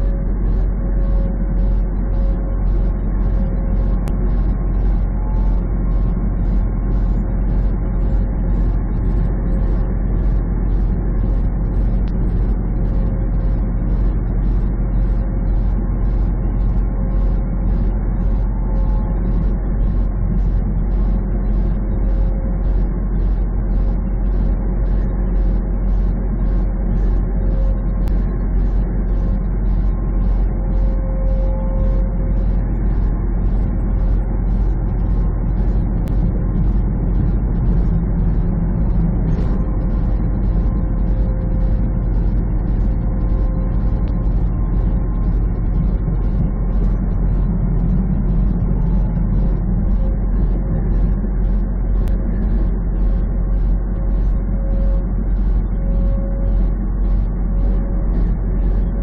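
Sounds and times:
thin steady whine: 0.0s - 59.0s
truck engine and road rumble: 0.0s - 59.0s
light regular ticking: 32.4s - 54.4s.

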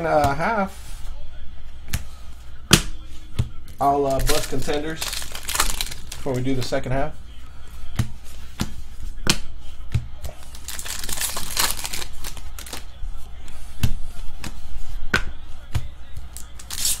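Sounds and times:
foil wrapper crinkling: 3.9s - 6.3s, 10.4s - 12.9s, 16.4s - 17.0s
cards snapping: 4.1s - 6.2s, 10.4s - 12.9s, 16.3s - 17.0s.

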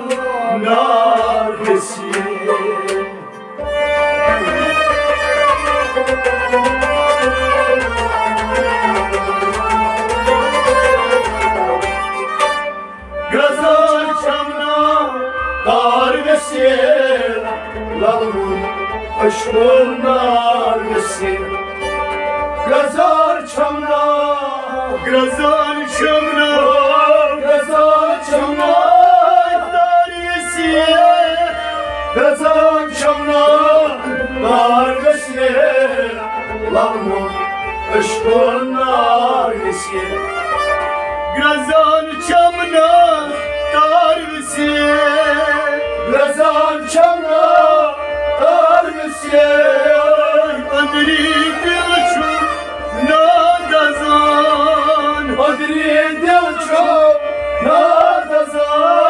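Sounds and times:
man singing: 0.0s - 12.0s, 13.2s - 22.0s, 22.6s - 59.0s
plucked rabab: 0.0s - 14.2s
bowed sarangi: 0.0s - 59.0s
harmonium: 0.0s - 59.0s.

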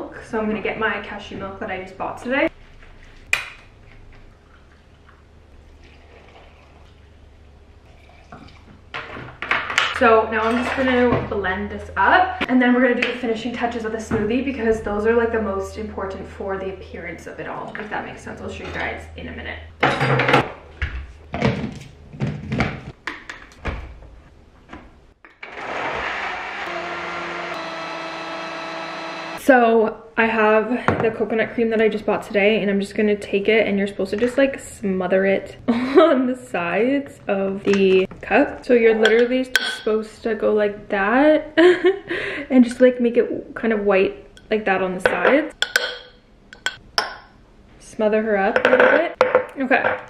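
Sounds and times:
milk pouring into a cup: 4.3s - 7.1s
blender motor running: 25.4s - 29.4s.

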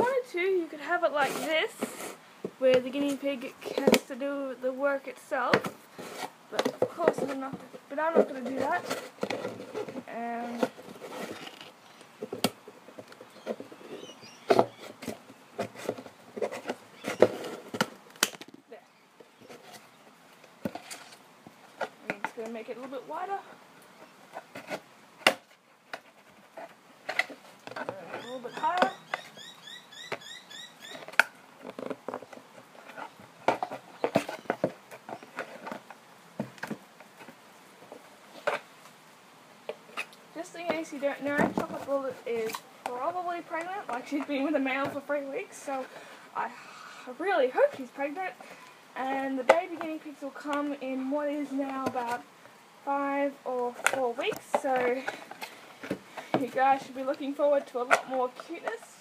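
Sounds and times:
plastic box handling: 5.4s - 18.7s, 53.6s - 59.0s.

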